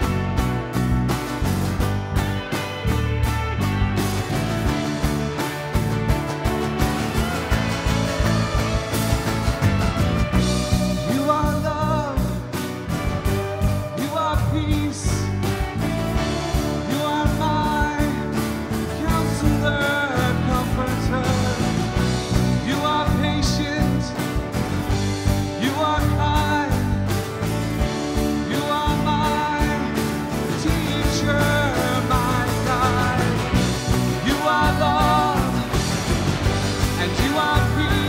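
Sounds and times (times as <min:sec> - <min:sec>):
singing over band: 0:28.2 - 0:38.0.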